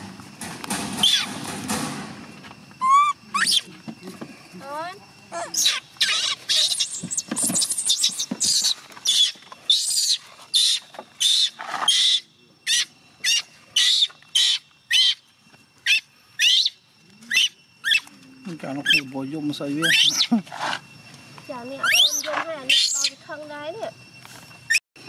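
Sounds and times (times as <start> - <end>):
baby monkey screeching: 1.0 - 1.5, 2.8 - 3.7, 5.3 - 18.2, 18.8 - 19.1, 19.7 - 20.8, 21.8 - 23.2.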